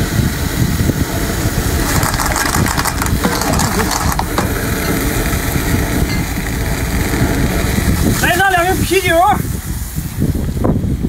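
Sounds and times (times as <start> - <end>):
wind rumbling on microphone: 0.0 - 11.0
bottle crackling and rustling: 1.7 - 8.2.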